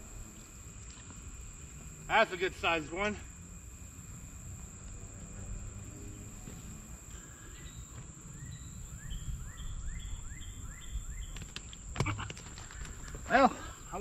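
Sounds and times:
high insect drone: 0.0s - 14.0s
wind rumbling on microphone: 4.7s - 14.0s.

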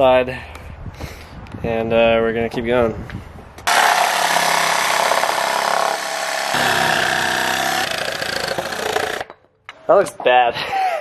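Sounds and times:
reciprocating saw cutting wood: 3.7s - 9.3s.

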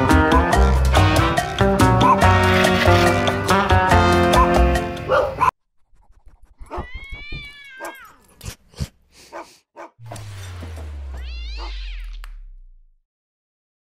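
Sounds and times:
cat meowing: 6.7s - 8.3s, 11.2s - 12.3s.

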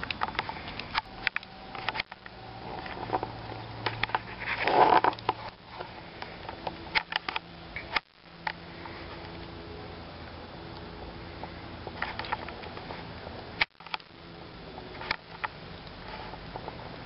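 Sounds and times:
sharp pops and clicks: 4.9s - 8.6s, 13.6s - 14.2s.

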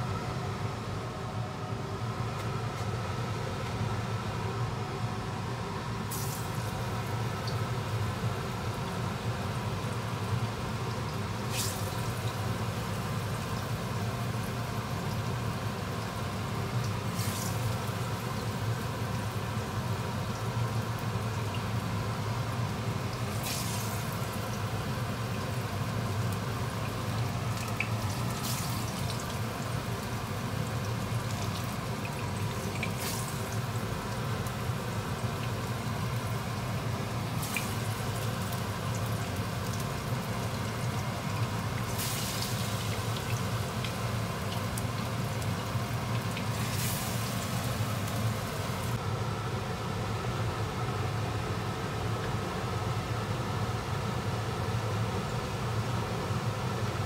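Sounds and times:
food sizzling in oil: 6.1s - 49.0s.

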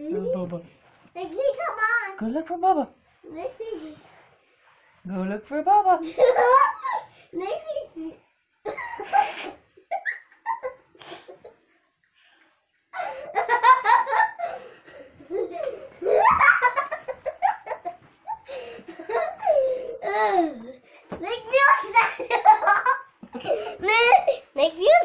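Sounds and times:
young children giggling: 6.0s - 7.1s, 8.6s - 11.6s, 13.0s - 20.6s, 22.0s - 24.4s.

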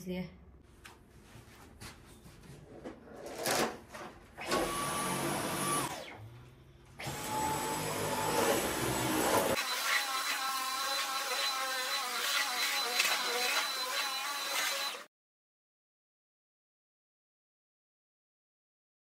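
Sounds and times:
vacuum cleaner whine: 4.4s - 15.1s.

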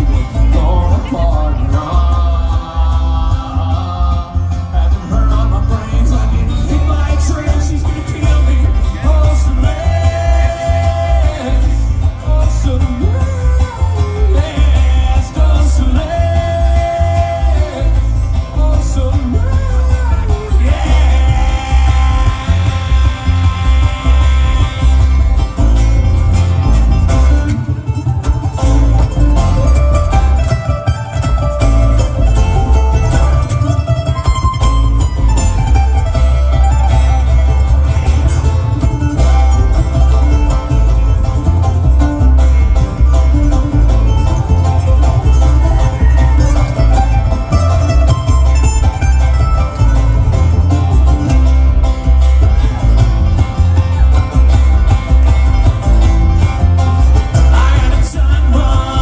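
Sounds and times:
person singing lead vocal: 0.0s - 26.1s, 56.6s - 59.0s
acoustic guitar: 0.0s - 59.0s
banjo: 0.0s - 59.0s
bluegrass string band playing: 0.0s - 59.0s
mandolin: 0.0s - 59.0s
upright bass: 0.0s - 59.0s.

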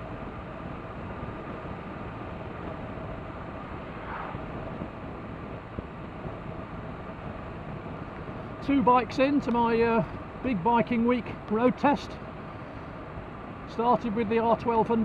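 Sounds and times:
wind rush: 0.0s - 8.8s
motorcycle engine hum: 0.0s - 15.0s
road noise: 0.0s - 15.0s.

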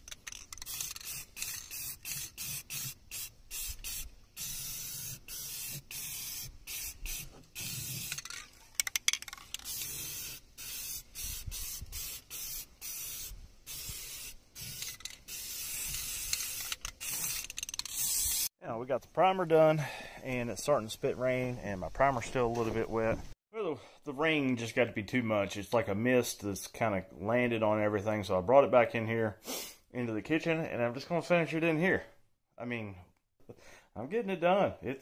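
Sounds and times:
aerosol spray can hissing: 0.6s - 8.3s, 9.5s - 18.5s.

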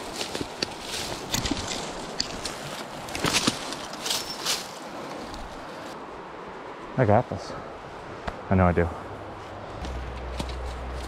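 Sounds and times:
footsteps crunching through leaves: 0.0s - 6.0s
twigs snapping: 0.0s - 6.0s.

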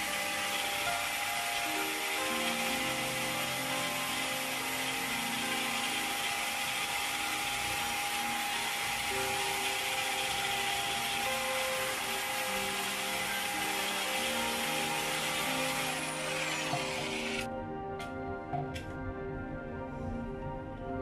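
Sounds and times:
electric drill boring into wood: 0.0s - 17.5s
soft background music: 0.0s - 21.0s.

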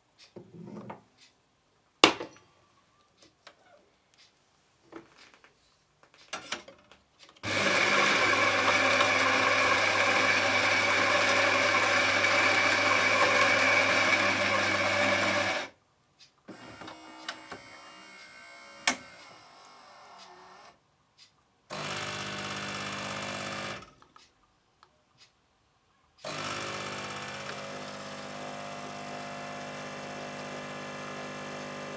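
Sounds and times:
coffee grinder whirring: 7.4s - 15.7s, 21.7s - 23.9s, 26.2s - 31.9s.

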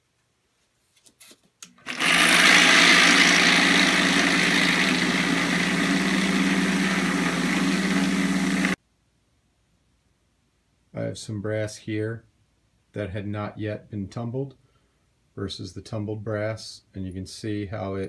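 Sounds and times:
vibratory tumbler motor hum: 1.8s - 8.8s.

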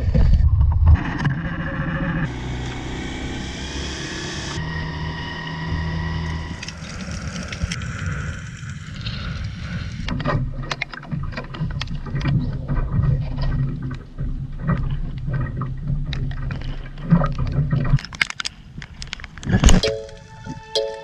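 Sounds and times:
outboard motor running: 2.2s - 10.6s
water splashing against hull: 10.1s - 19.8s.

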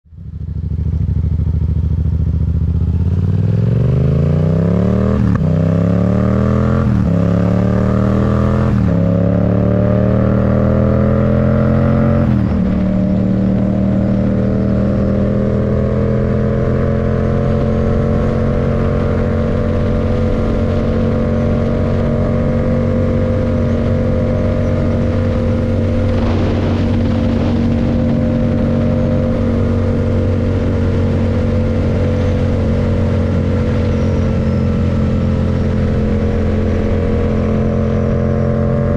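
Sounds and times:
motorcycle engine accelerating: 0.1s - 38.9s.

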